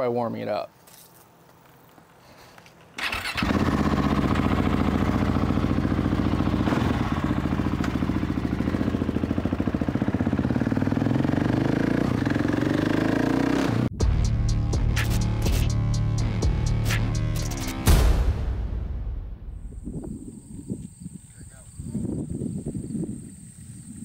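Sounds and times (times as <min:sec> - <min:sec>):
motorcycle engine starting and idling: 0:02.9 - 0:13.9.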